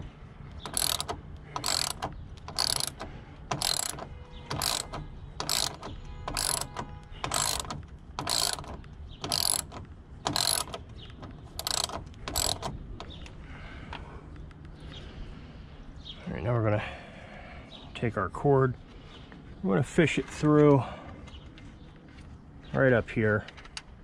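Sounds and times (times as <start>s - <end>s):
hand ratchet clicking: 0.6s - 13.1s.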